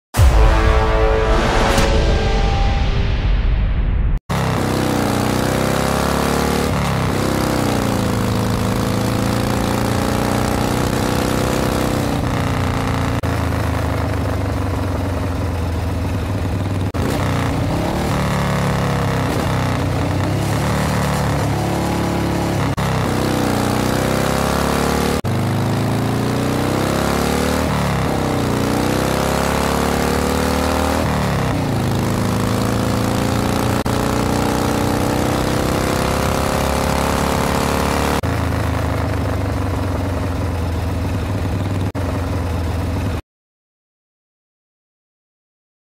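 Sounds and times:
car engine revving: 0:16.9 - 0:38.2.

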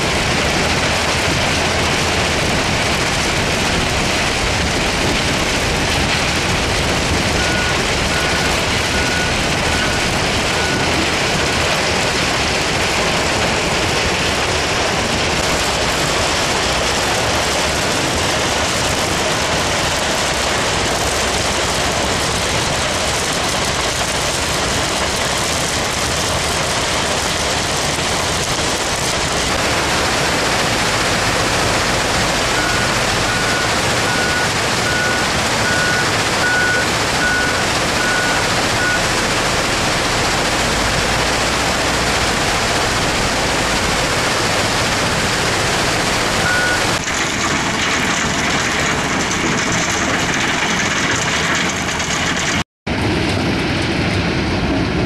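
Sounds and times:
heavy machinery running: 0:00.0 - 0:55.0
reversing alarm beeps: 0:07.4 - 0:11.0, 0:32.5 - 0:39.1, 0:46.4 - 0:47.0.

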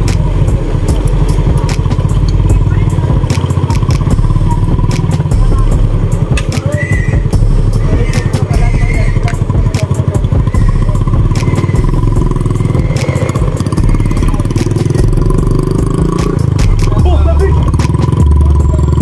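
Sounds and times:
sharp clicks: 0:00.0 - 0:02.5, 0:03.2 - 0:04.1, 0:04.8 - 0:05.3, 0:12.7 - 0:13.8
motorcycle engine running: 0:00.0 - 0:19.0.

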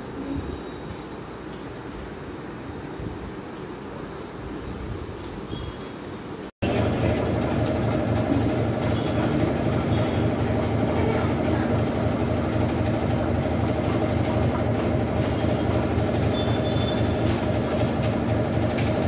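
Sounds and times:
washing machine humming and rumbling: 0:00.0 - 0:19.0.

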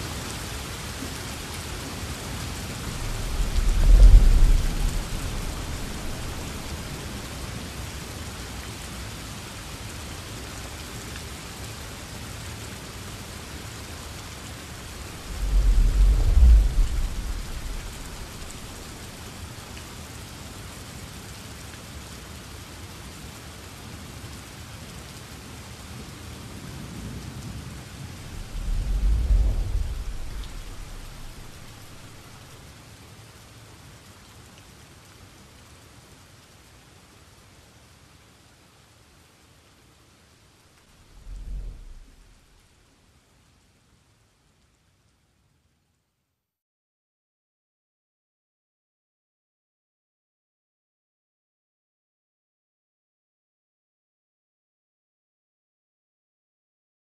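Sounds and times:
steady rain: 0:00.0 - 0:46.5
low rolls of thunder: 0:02.0 - 0:08.1, 0:14.7 - 0:19.6, 0:26.8 - 0:32.6, 0:40.9 - 0:42.7.

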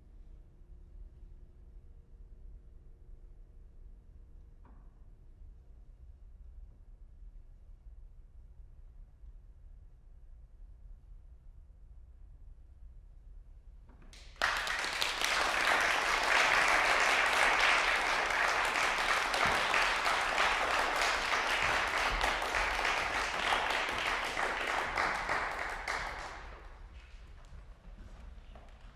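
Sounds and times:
audience applause: 0:14.2 - 0:26.9.

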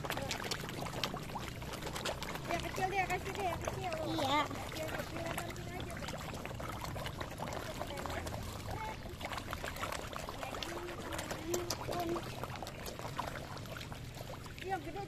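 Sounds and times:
fish splashing at water surface: 0:00.0 - 0:15.0.

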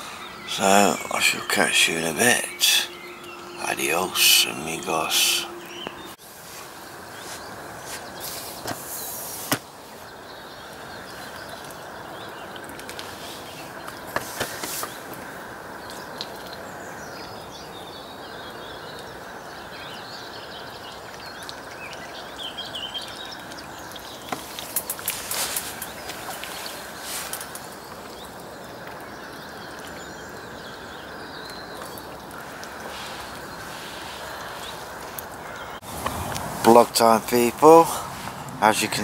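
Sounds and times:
background hiss: 0:00.0 - 0:39.0
small birds chirping: 0:00.0 - 0:39.0
ducks splashing in water: 0:31.6 - 0:36.3.

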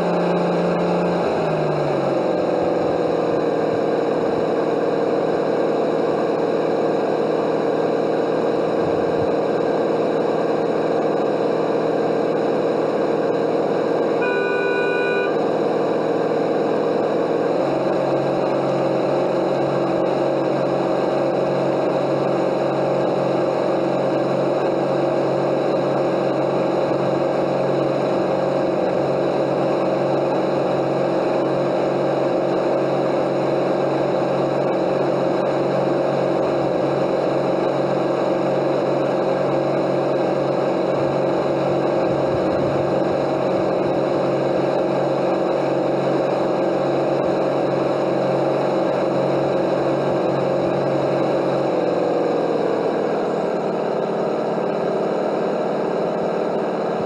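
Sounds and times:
model boat motor whine: 0:00.0 - 0:57.0
short beep: 0:14.2 - 0:15.4.

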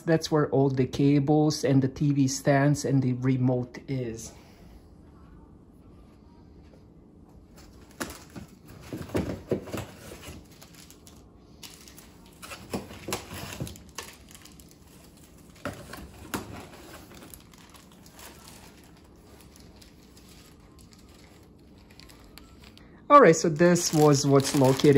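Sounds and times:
packaging rustling and crinkling: 0:07.6 - 0:24.9.

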